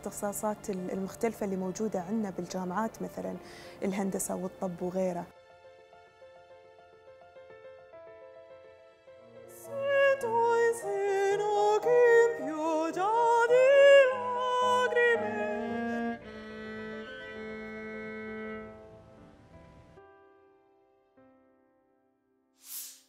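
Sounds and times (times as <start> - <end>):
soft accompaniment: 0.0 - 20.7
woman singing opera: 9.5 - 16.2.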